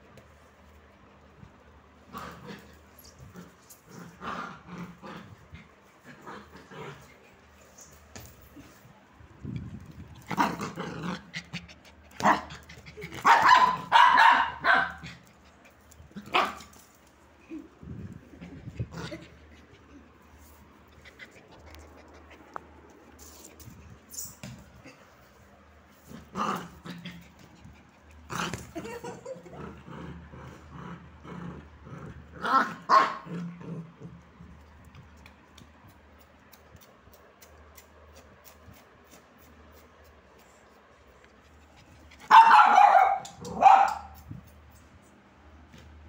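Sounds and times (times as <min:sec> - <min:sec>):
dog growling: 0:10.2 - 0:13.2, 0:28.3 - 0:34.5
small dog barking: 0:13.2 - 0:15.1, 0:32.4 - 0:33.3, 0:42.3 - 0:44.2.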